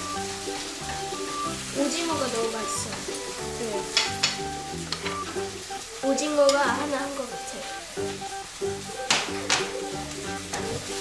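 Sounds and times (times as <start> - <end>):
background music: 0.0 - 11.0
food sizzling in a pan: 0.0 - 11.0
child speaking: 1.8 - 4.0, 6.0 - 8.0.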